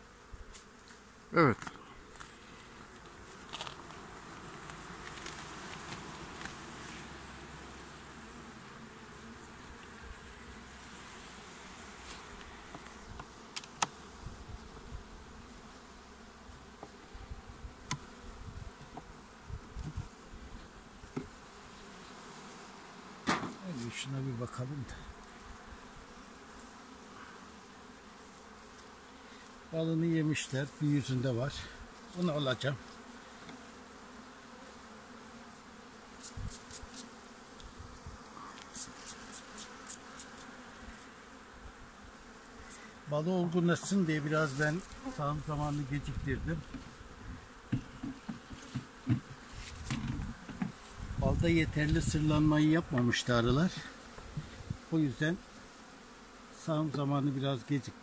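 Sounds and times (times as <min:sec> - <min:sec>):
honeybees buzzing: 0:00.0 - 0:58.0
hive tool clicking on wooden frames: 0:02.9 - 0:06.6, 0:12.1 - 0:14.0, 0:17.8 - 0:18.2, 0:23.2 - 0:23.6, 0:33.4 - 0:33.7, 0:38.6 - 0:41.1, 0:47.6 - 0:50.8
brush sweeping across frame: 0:36.2 - 0:37.1, 0:38.4 - 0:41.1, 0:43.9 - 0:46.2, 0:49.5 - 0:50.0.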